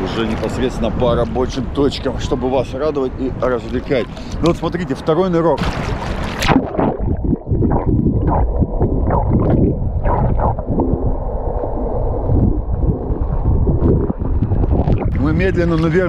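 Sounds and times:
muffled underwater rushing water: 0:00.0 - 0:16.0
gurgling bubble bursts: 0:05.6 - 0:16.0.

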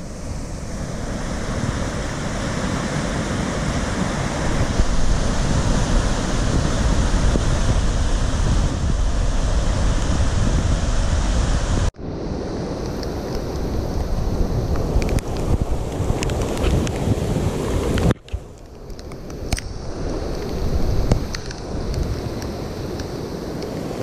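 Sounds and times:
water rushing over spillway: 0:00.0 - 0:18.3.

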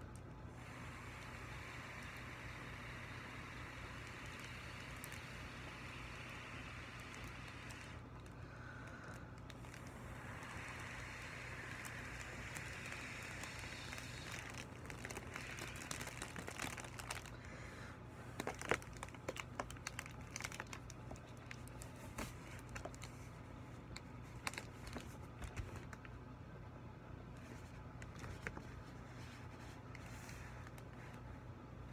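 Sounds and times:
soft steady hiss: 0:00.0 - 0:31.9
foil balloon crinkling: 0:02.0 - 0:17.5, 0:18.2 - 0:26.1.

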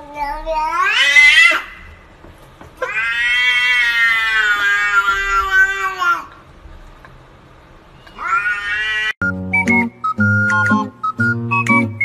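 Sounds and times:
cat meowing in long yowls: 0:02.8 - 0:06.3, 0:08.2 - 0:09.2.

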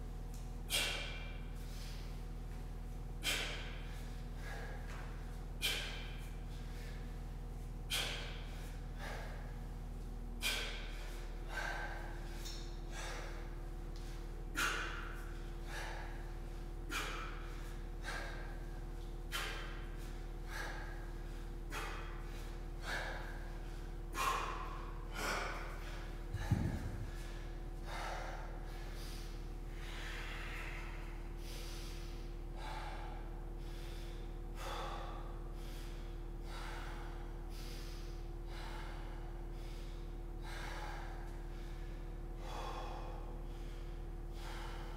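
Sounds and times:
man's forceful exhalations: 0:00.5 - 0:44.9
low-pitched thud or grunt: 0:26.3 - 0:27.2.

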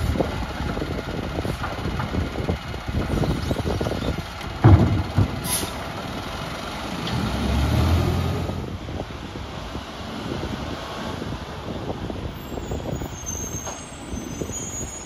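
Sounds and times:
garbage truck engine running: 0:00.0 - 0:07.2
heavy thuds of trash cart: 0:04.6 - 0:05.8.

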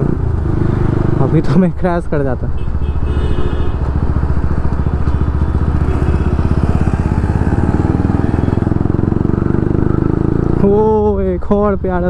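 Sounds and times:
motorcycle engine running: 0:03.0 - 0:12.0.

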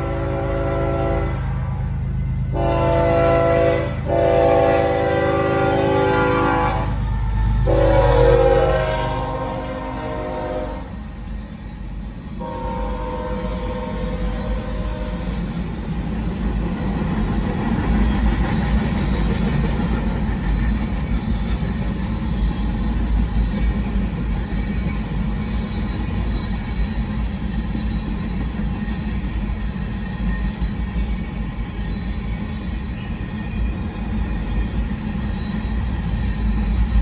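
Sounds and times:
train wheels rumbling on rails: 0:00.0 - 0:37.0
high wheel squeal: 0:10.5 - 0:15.5, 0:20.1 - 0:37.0.

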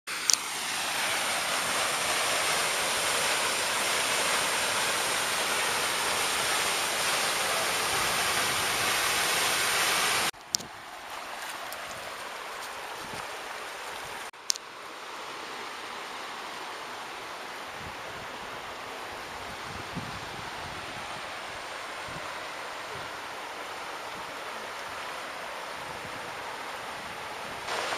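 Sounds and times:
waterfall pouring into a pool: 0:00.1 - 0:10.4, 0:27.7 - 0:27.9
creek running over rocks: 0:00.1 - 0:27.9.

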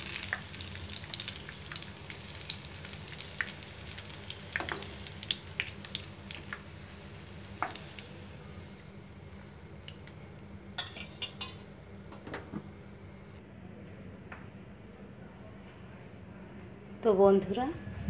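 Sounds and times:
food frying in hot oil: 0:00.0 - 0:08.4.

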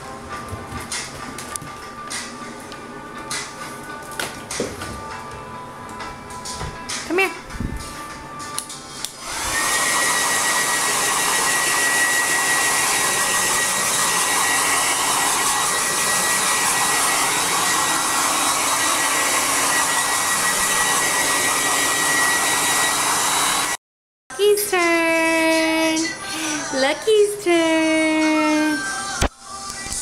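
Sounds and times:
hair dryer running: 0:09.0 - 0:23.8.

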